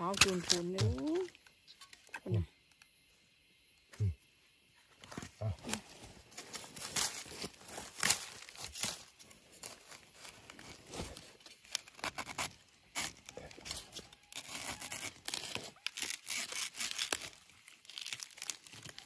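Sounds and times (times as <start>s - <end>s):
bamboo shoots snapping: 0.0s - 2.9s, 6.8s - 9.8s, 11.5s - 19.0s.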